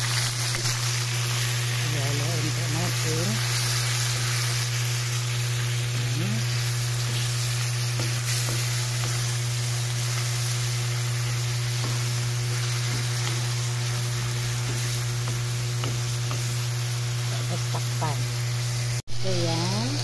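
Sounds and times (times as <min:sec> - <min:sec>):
chicken sizzling in hot oil: 0:00.0 - 0:20.0
steady low hum: 0:00.7 - 0:20.0
spatula scraping wok: 0:06.4 - 0:18.2.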